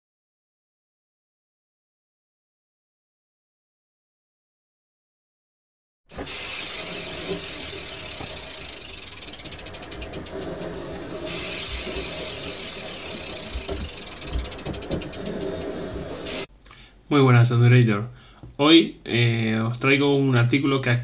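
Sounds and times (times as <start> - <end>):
rapid ratchet-like clicking: 6.1 - 16.5
steady rushing noise: 6.2 - 16.5.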